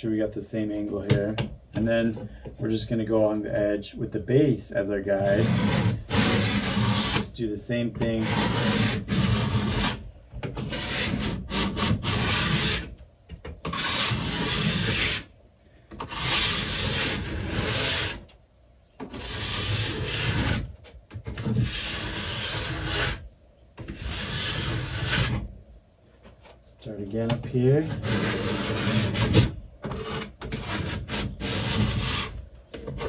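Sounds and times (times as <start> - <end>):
stone grinding ski edge: 5.2 - 7.3, 8.0 - 12.9, 13.6 - 15.3, 16.0 - 18.3, 19.0 - 23.2, 23.8 - 25.4, 27.9 - 33.0.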